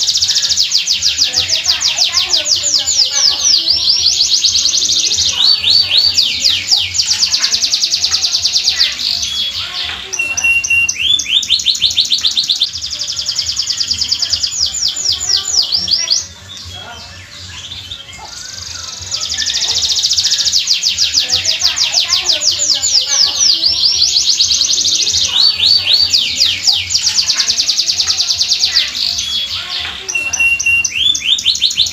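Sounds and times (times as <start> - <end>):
canary singing trills: 0.0 - 31.9
steady bird whistle: 10.2 - 12.8, 30.1 - 31.9.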